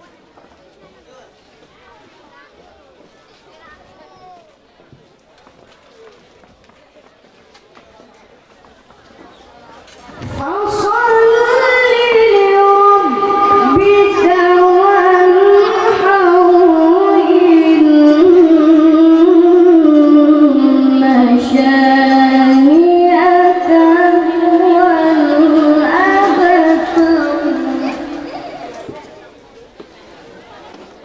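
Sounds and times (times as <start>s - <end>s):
boy chanting recitation: 10.1s - 29.0s.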